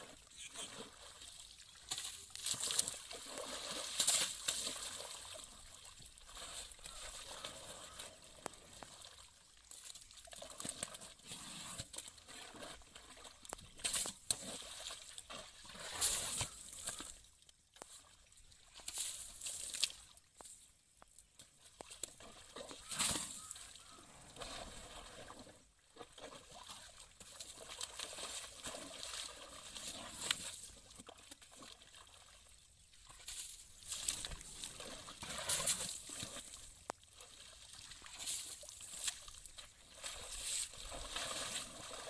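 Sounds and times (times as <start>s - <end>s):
elephant trunk sloshing water: 0.0s - 9.3s, 22.1s - 32.3s, 33.8s - 42.0s.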